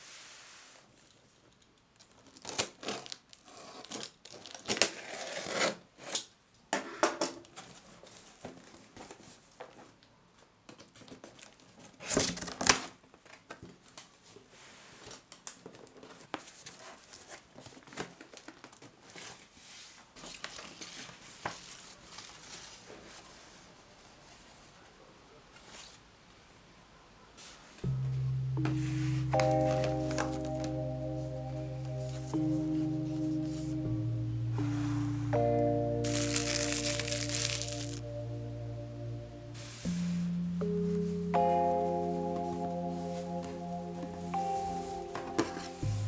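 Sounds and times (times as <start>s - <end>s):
box cutter scraping through tape: 4.7s - 6.3s
paper rustling: 36.0s - 38.0s.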